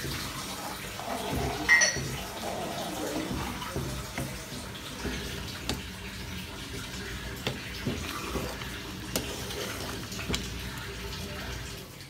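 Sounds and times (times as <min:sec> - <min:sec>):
wet mixture sloshing: 0:00.0 - 0:12.0
spoon clinking metal pan: 0:01.6 - 0:02.2.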